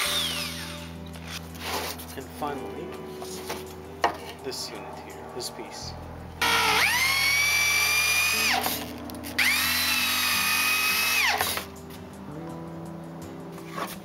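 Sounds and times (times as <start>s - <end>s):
electric drill driving screws: 0.0s - 1.0s, 6.4s - 11.7s.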